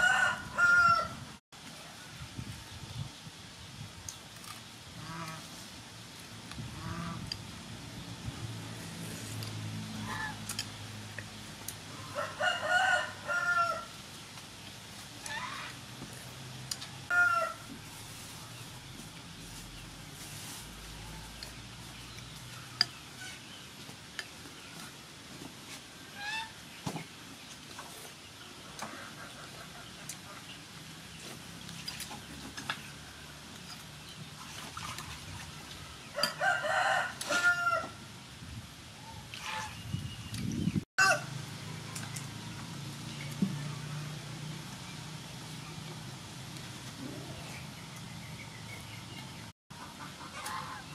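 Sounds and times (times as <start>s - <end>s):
rooster crowing: 0.0s - 1.2s, 12.0s - 13.9s, 17.1s - 17.6s, 36.2s - 38.0s, 41.0s - 41.4s.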